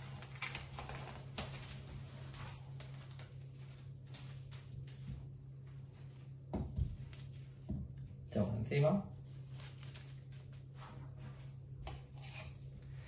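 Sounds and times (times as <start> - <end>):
cling film crinkling: 0.0 - 5.0, 9.3 - 10.7.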